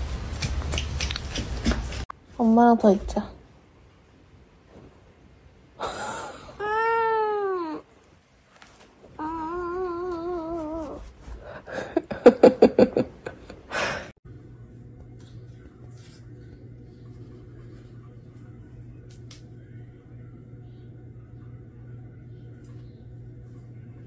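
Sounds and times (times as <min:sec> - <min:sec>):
cat meowing: 0:06.6 - 0:07.9, 0:09.2 - 0:11.0.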